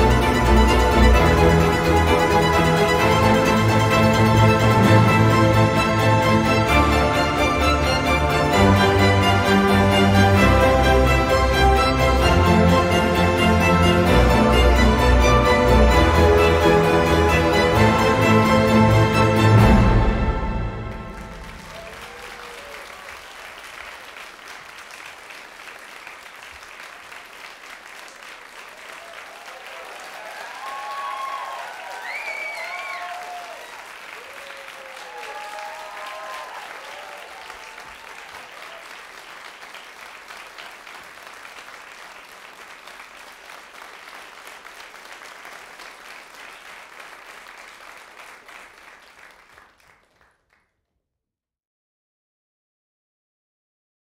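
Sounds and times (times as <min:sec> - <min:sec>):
audience applauding: 0:00.0 - 0:50.6
shouted cheers: 0:21.4 - 0:24.0, 0:28.6 - 0:39.2.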